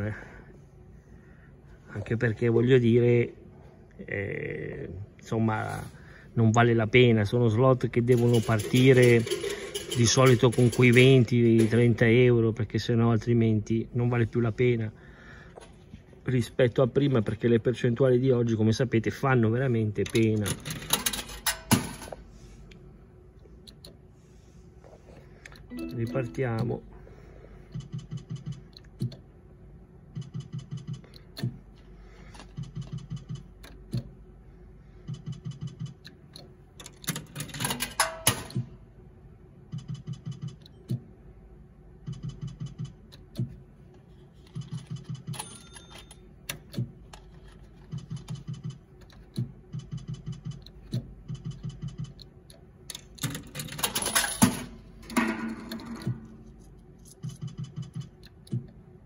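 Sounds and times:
steady low hum: 0.0s - 59.0s
slot machine reels ticking: 7.8s - 12.1s, 20.0s - 22.1s, 25.7s - 26.9s, 35.1s - 38.6s.

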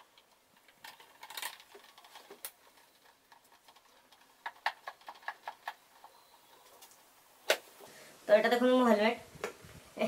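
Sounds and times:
small plastic clicks: 0.0s - 6.2s.

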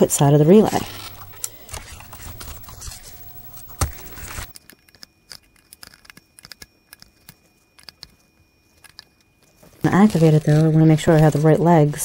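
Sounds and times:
tool scraping plastic cover: 0.5s - 4.5s, 9.6s - 12.0s.

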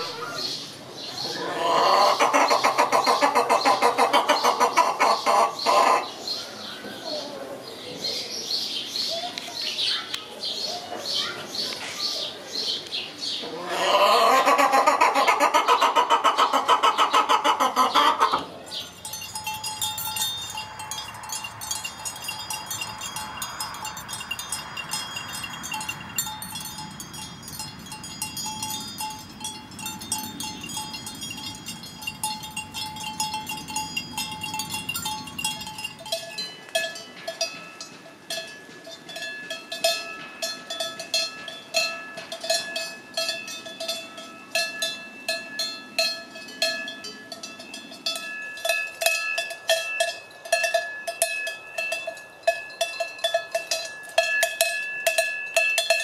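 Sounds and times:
neck bells jingling: 14.3s - 56.0s
cowbell clanking: 18.6s - 56.0s.

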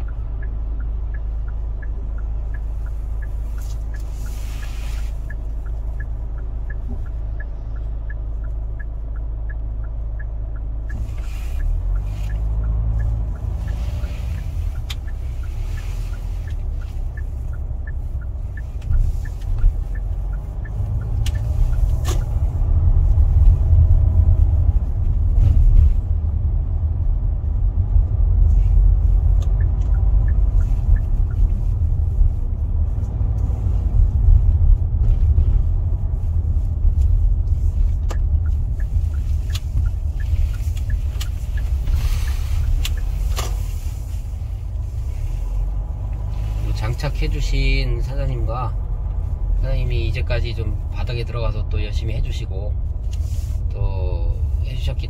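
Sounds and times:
engine and road rumble: 0.0s - 55.0s
light ticking: 0.0s - 55.0s.

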